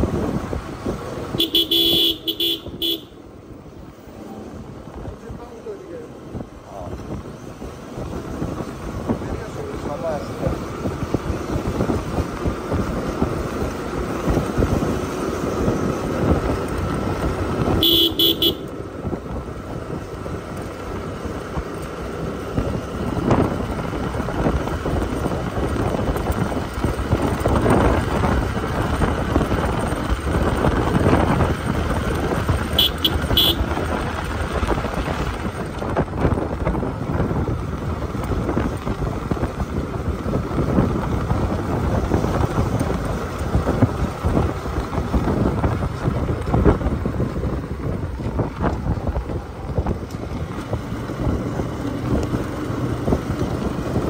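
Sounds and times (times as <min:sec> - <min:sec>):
motorcycle engine running: 0:00.0 - 0:54.0
road and wind noise: 0:00.0 - 0:54.0
horn tooting: 0:01.3 - 0:03.3, 0:17.7 - 0:18.8, 0:32.7 - 0:33.8.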